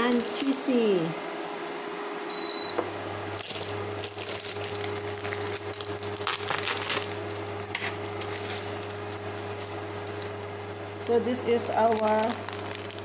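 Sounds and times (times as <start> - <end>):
steady low hum: 0.0 - 13.0
vegetables sizzling in a frying pan: 3.0 - 13.0.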